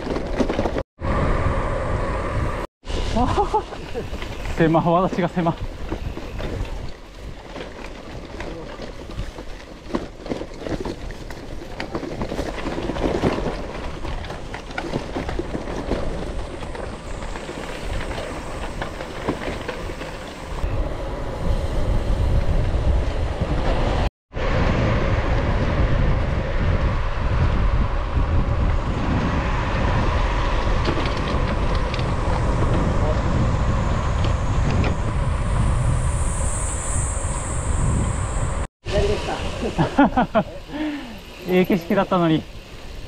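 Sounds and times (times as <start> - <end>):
bike rattling over dirt track: 0.0 - 0.8, 2.9 - 35.3
wind buffeting microphone: 3.6 - 8.3, 10.8 - 40.4.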